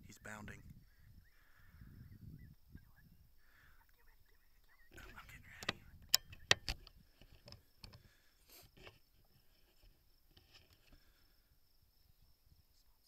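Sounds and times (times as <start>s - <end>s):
faint rustling: 3.4s - 11.5s
sharp clicks: 4.6s - 8.0s.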